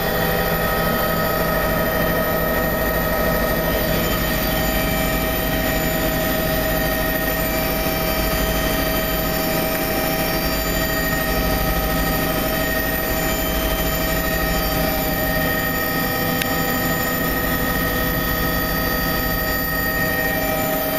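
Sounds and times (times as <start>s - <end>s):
helicopter engine and rotor drone: 0.0s - 20.9s
high whining tones: 0.0s - 20.9s.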